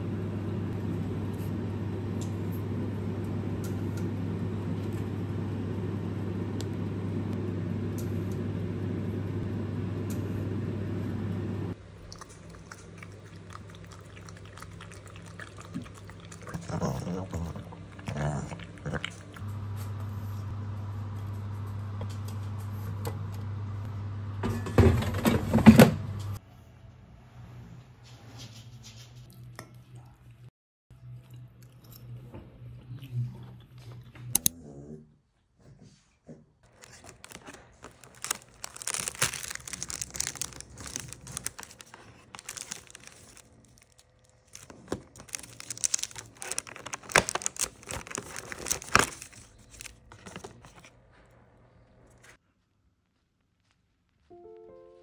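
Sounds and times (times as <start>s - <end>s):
cardboard tearing and crinkling: 36.7s - 50.9s.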